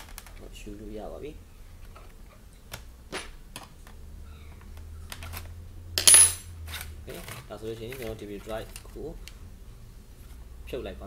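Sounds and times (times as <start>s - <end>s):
sharp metallic clink: 6.0s - 6.5s
plastic and metal clicks and scrapes: 6.7s - 9.4s.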